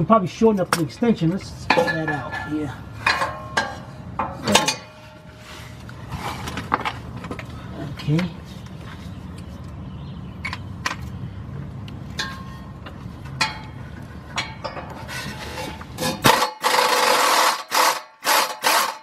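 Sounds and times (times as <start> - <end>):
power tool on bolt: 16.2 - 19.0.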